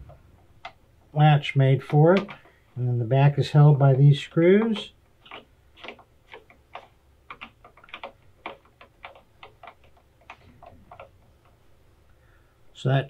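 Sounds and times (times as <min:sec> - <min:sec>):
hand ratchet clicking: 0:04.6 - 0:11.5.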